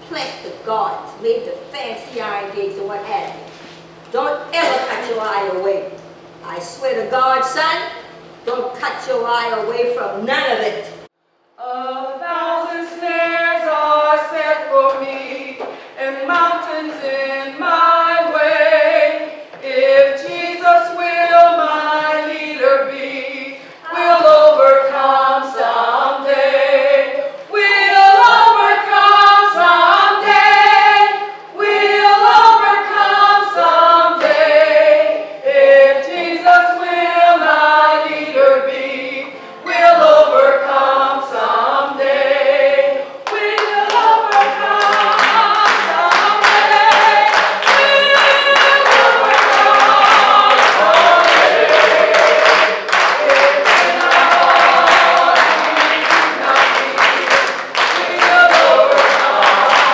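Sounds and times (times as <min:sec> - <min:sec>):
a cappella group singing: 0:11.6 - 0:59.9
hand clapping: 0:43.2 - 0:59.9.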